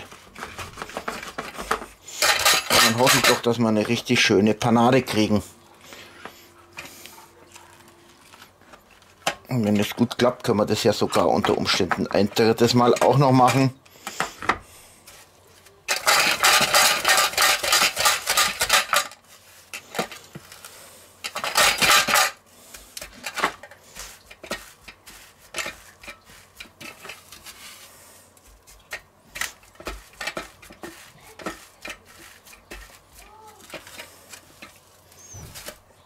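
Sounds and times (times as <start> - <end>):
metal tongs scraping a pan: 0.0 - 3.7, 15.9 - 20.6, 21.2 - 27.7, 28.9 - 35.8
breadcrumbs rustling: 0.0 - 13.5, 14.6 - 36.0.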